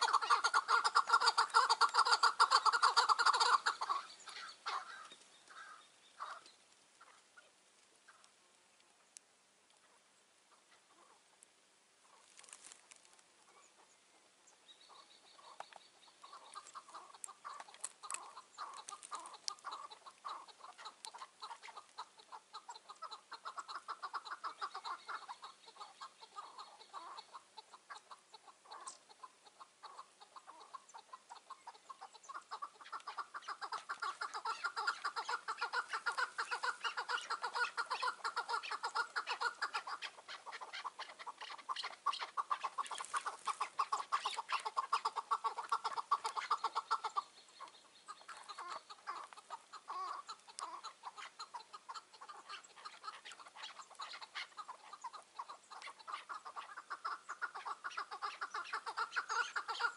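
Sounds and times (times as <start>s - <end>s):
partridge calling: 0.0s - 8.4s, 9.7s - 11.4s, 12.0s - 59.9s.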